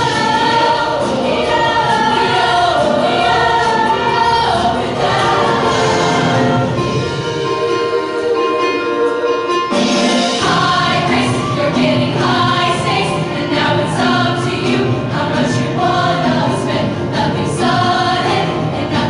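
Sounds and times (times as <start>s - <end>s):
women's choir singing: 0.0s - 9.7s, 10.3s - 19.0s
instrumental accompaniment: 0.0s - 19.0s.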